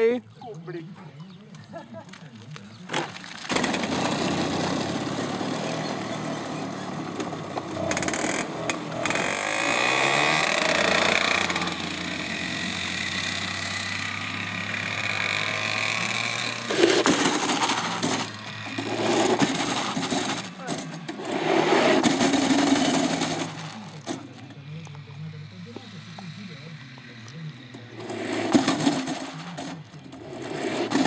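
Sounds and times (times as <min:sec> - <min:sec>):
go-kart engine revving: 0:02.9 - 0:31.0.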